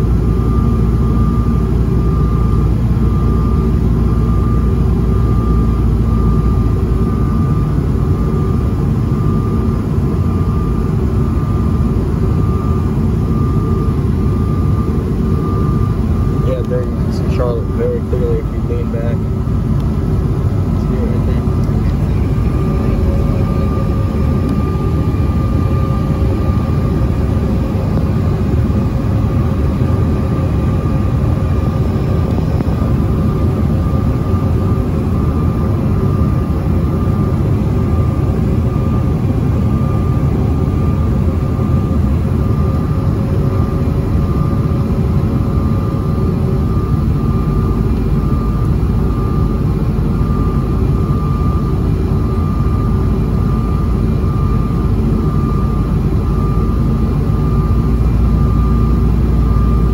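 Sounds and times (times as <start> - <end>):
airliner cabin rumble: 0.0 - 59.9
thin steady whine: 0.0 - 59.9.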